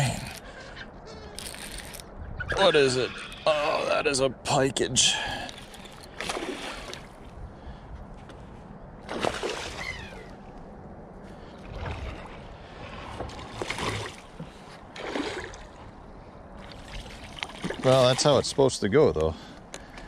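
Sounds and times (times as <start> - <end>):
fish thrashing and splashing: 9.1 - 10.3, 13.1 - 15.9.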